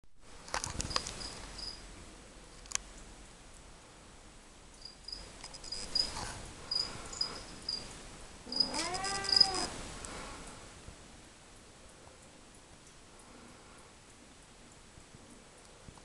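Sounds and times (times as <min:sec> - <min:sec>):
crickets chirping: 0:00.8 - 0:01.8, 0:04.8 - 0:09.7
cat meowing: 0:08.5 - 0:09.8.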